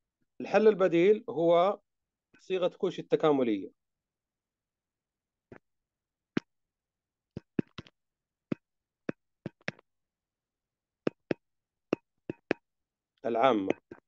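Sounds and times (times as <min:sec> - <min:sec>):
pen tapping on whiteboard: 0:12.3 - 0:12.6.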